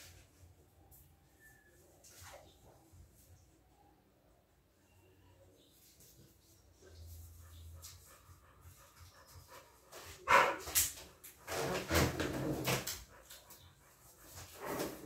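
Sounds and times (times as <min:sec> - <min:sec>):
dog barking: 0:10.1 - 0:10.8.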